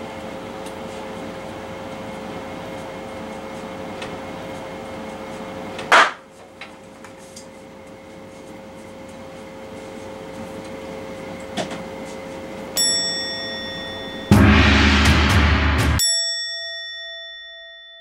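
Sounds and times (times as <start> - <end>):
room hum: 0.0 - 16.0
party popper pop: 5.9 - 6.2
chime sound effect: 12.8 - 14.8
sound effect music: 13.7 - 16.0.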